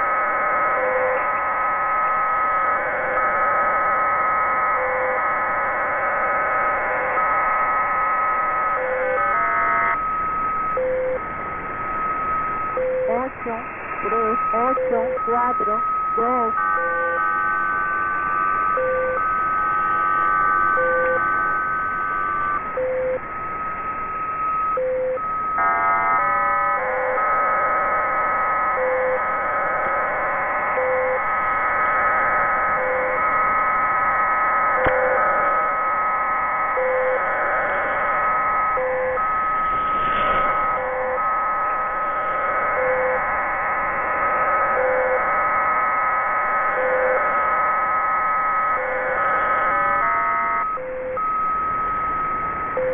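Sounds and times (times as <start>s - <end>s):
electronic beeps: 10.7s - 11.2s, 12.0s - 17.2s, 22.7s - 23.2s, 24.6s - 25.3s, 38.4s - 41.4s, 42.3s - 43.3s, 48.8s - 52.9s.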